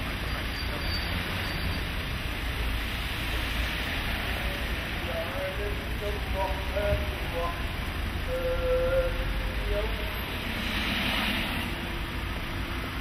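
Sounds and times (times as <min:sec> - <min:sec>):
hiss of wet street: 0:00.0 - 0:05.5, 0:10.0 - 0:13.0
tram rumbling on rails: 0:00.0 - 0:13.0.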